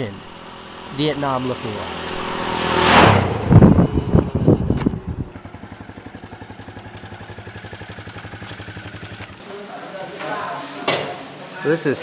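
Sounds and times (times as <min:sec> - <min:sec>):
motorcycle engine idling: 0:03.5 - 0:09.4.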